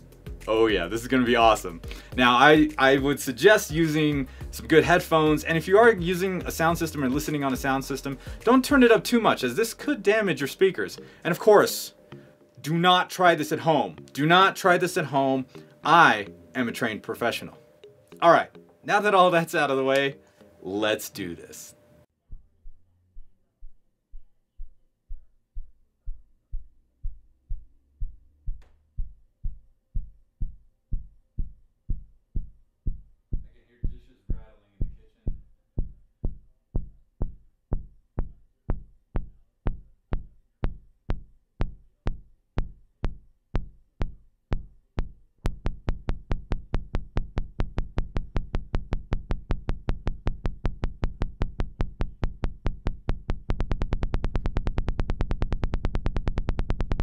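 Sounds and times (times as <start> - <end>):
deep synthesizer bass pulses: 22.2 - 33.5, 34.8 - 57.0.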